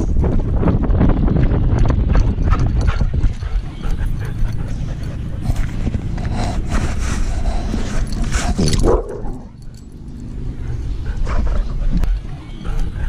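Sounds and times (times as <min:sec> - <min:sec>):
wind on microphone: 0:00.0 - 0:09.6
fur and harness rubbing: 0:04.3 - 0:09.6.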